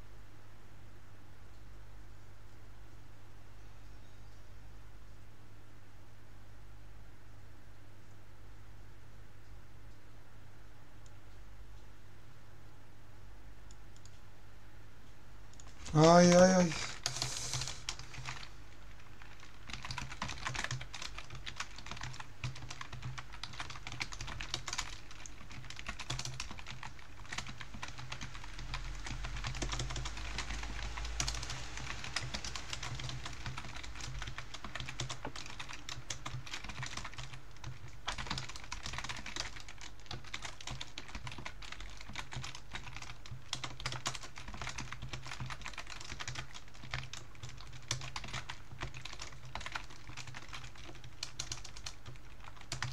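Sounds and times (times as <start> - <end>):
computer keyboard typing: 15.5 - 52.9.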